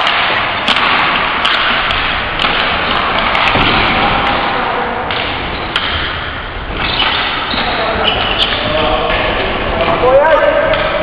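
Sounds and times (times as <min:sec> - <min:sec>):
hockey sticks and ball knocking: 0:00.0 - 0:04.4, 0:05.1 - 0:11.0
din of play in a gym: 0:00.0 - 0:11.0.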